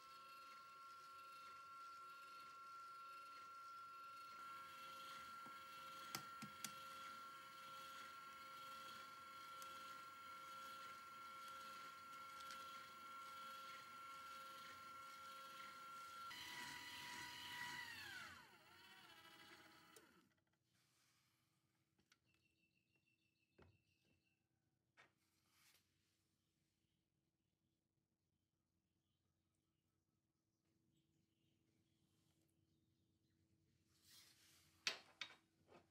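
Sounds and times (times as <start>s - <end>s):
stand mixer motor whining: 0.0s - 20.4s.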